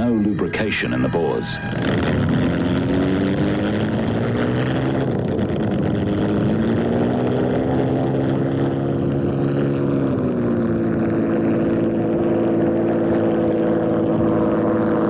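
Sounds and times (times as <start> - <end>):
propeller plane engine running: 0.0 - 15.0.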